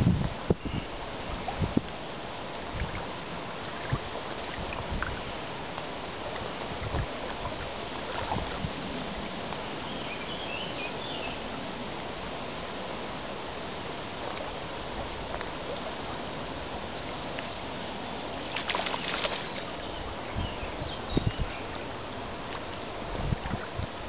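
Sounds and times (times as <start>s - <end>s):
river water rushing and lapping: 0.0s - 24.0s
small knocks and splashes: 2.5s - 5.2s, 5.8s - 8.7s, 18.4s - 19.7s.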